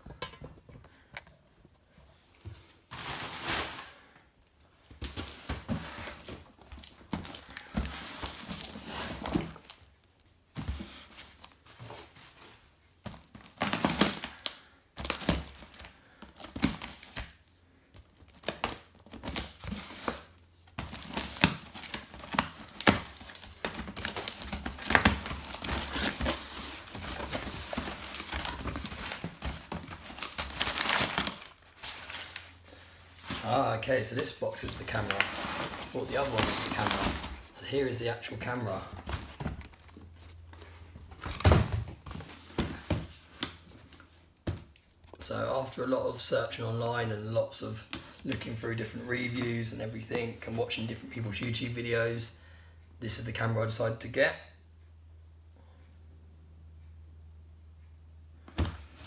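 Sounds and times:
packing paper rustling: 5.0s - 43.5s.

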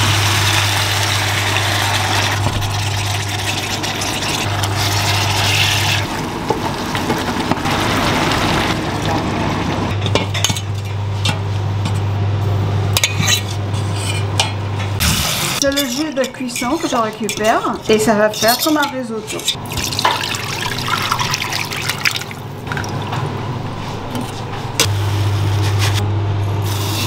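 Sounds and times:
utensils clinking against pot: 13.0s - 14.9s, 15.6s - 20.4s.

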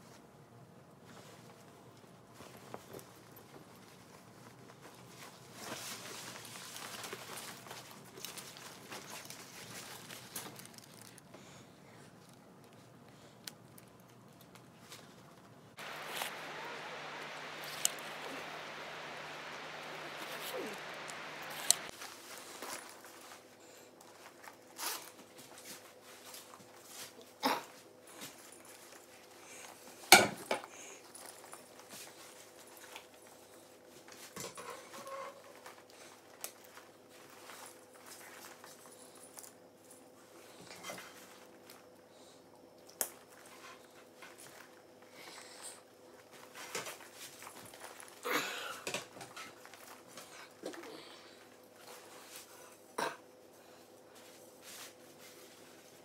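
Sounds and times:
faint steady hum: 0.0s - 56.0s
cord and clip rustling: 2.4s - 11.3s
river rushing: 15.8s - 21.9s.

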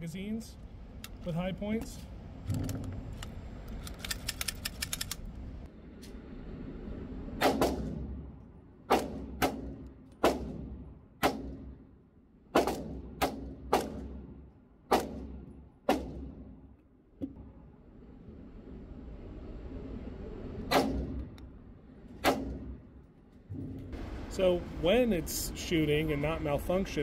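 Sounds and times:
small metallic clicks: 2.4s - 5.5s.

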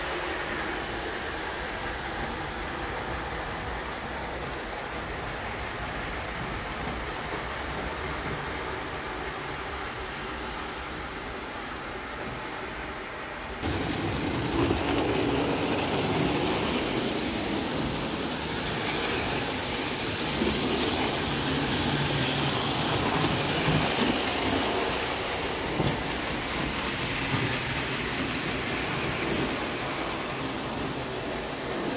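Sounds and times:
toy train wheels rattling on rails: 13.6s - 31.9s.

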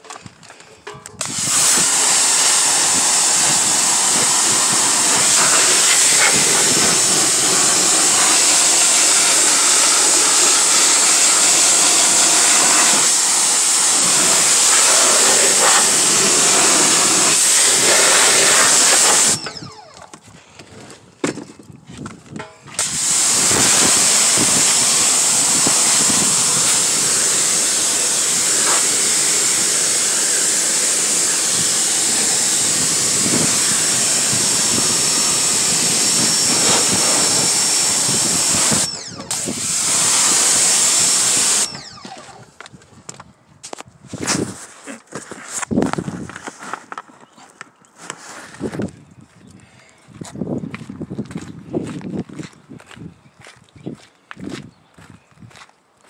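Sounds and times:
pressure washer spraying water: 1.2s - 19.7s, 22.8s - 42.0s.

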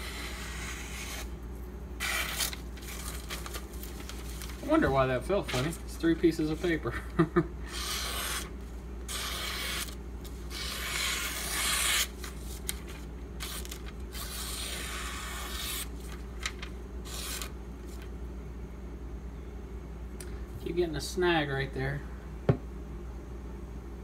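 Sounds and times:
knife slicing paper: 0.1s - 1.3s, 2.0s - 4.8s, 7.7s - 8.5s, 9.1s - 18.0s.

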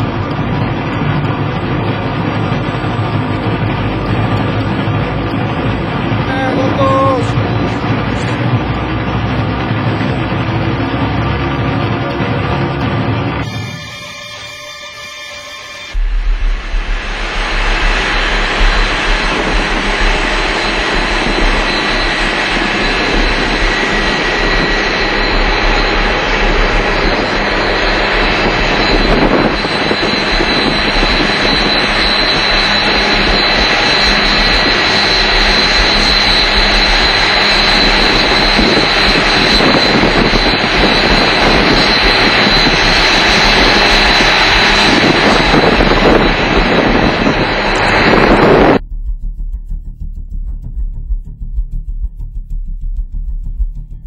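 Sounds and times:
combine harvester engine drone: 0.0s - 54.0s
thin high whine: 13.2s - 54.0s.

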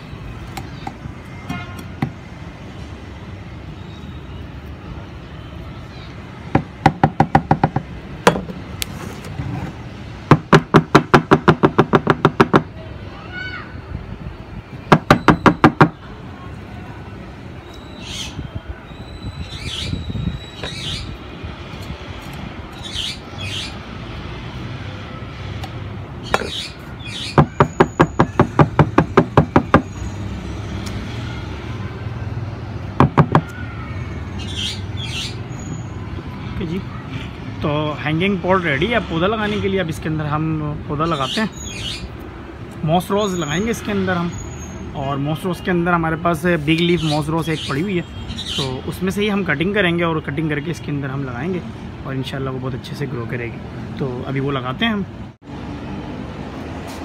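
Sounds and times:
knocks on bamboo planter: 6.5s - 8.6s, 10.3s - 12.7s, 33.0s - 33.5s.

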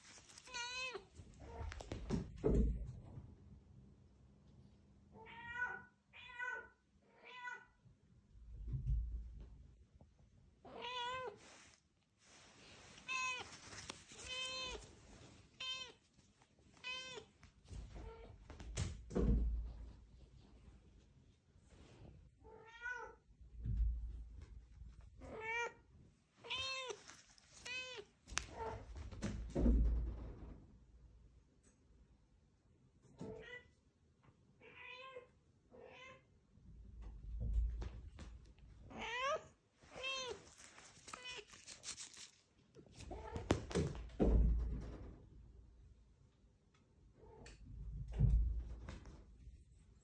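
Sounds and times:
rustling: 0.0s - 2.4s, 10.8s - 22.2s, 26.2s - 29.6s, 37.7s - 44.2s
cat meowing: 0.3s - 1.8s, 10.6s - 11.4s, 13.0s - 14.9s, 16.8s - 17.3s, 26.4s - 27.0s.

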